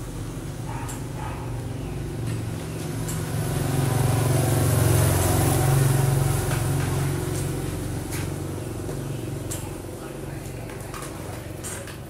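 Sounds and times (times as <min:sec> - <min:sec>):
motorbike driving past: 0:00.0 - 0:10.3.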